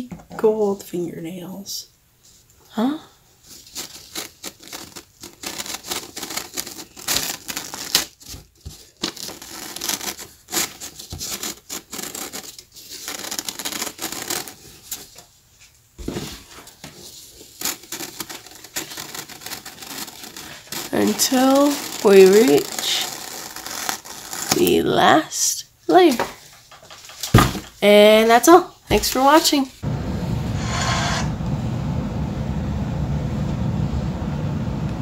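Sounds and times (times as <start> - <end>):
paper rustling and scraping: 3.4 - 24.8, 26.3 - 27.8.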